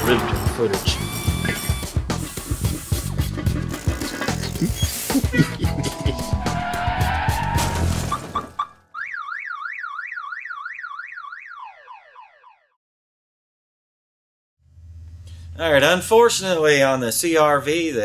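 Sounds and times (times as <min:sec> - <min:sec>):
music with knocks and clatter: 0:00.0 - 0:05.5
warbling siren-like tone: 0:06.0 - 0:12.7.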